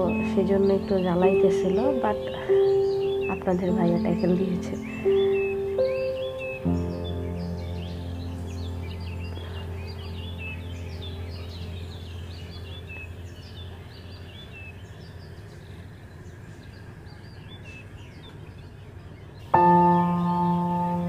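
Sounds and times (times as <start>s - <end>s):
ambient music chord: 0.0s - 14.4s, 19.5s - 21.0s
background music drone: 0.0s - 16.3s, 19.4s - 21.0s
small birds chirping: 0.0s - 21.0s.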